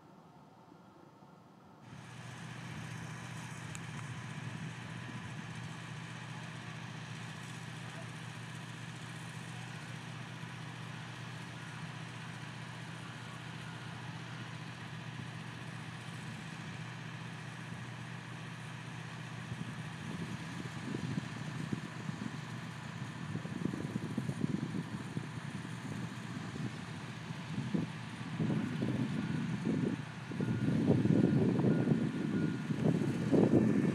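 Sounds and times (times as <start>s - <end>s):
faint high whine: 0.0s - 2.0s
ground equipment engine hum: 0.0s - 33.9s
wind buffeting microphone: 19.5s - 33.9s.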